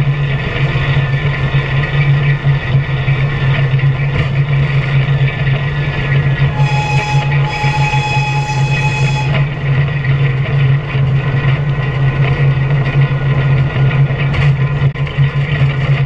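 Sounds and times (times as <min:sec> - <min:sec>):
diesel locomotive engine drone: 0:00.0 - 0:16.0
high whistle-like tone: 0:06.5 - 0:09.5.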